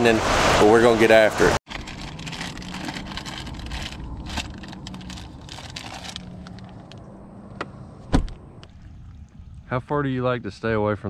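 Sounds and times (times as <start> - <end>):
plastic packages crinkling: 1.7 - 6.9.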